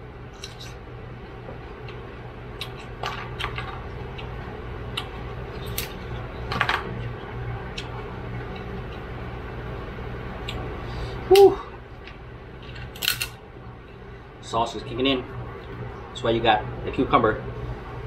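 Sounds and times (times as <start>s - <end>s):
low fan hum: 0.0s - 18.0s
crab shell cracking: 12.9s - 13.3s.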